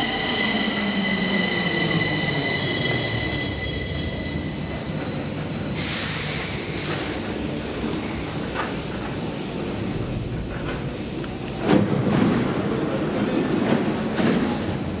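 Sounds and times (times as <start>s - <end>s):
train wheel squeal: 0.0s - 7.2s
train rumble and clatter: 0.0s - 15.0s.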